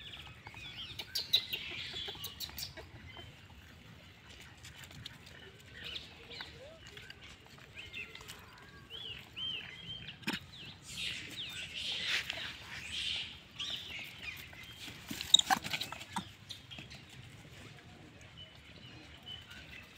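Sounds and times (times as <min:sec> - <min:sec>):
monkey squeaky calls: 0:15.2 - 0:16.6.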